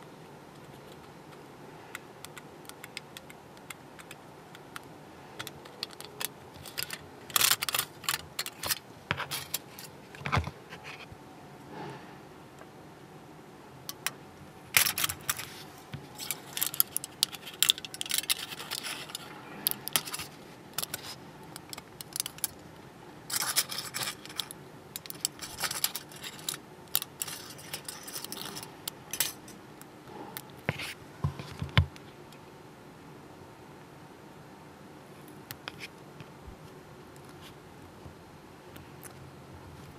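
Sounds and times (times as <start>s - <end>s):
aluminium foil crinkling: 5.4s - 9.9s, 14.8s - 22.6s, 23.3s - 29.5s.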